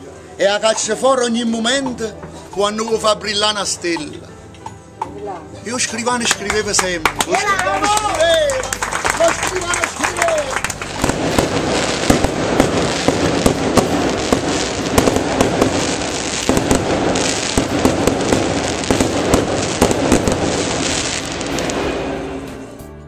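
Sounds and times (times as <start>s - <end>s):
fireworks crackling: 5.7s - 22.8s
fireworks bangs: 9.1s - 22.8s.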